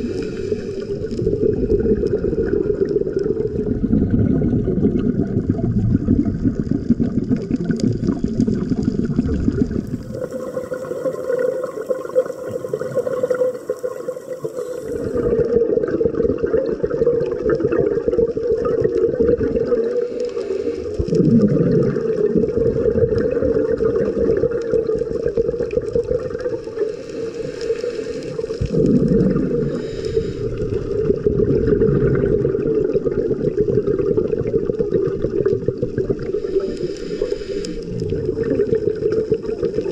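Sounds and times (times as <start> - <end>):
low bursts of exhaled bubbles: 0.0 - 39.9
underwater water rush: 0.0 - 39.9.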